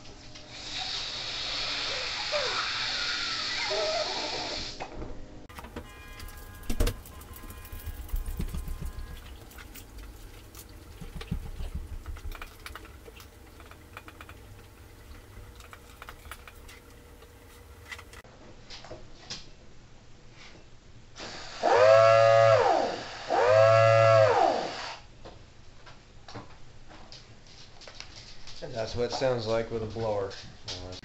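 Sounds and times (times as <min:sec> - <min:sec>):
small siren wailing: 0:05.6 - 0:09.5, 0:21.6 - 0:24.8.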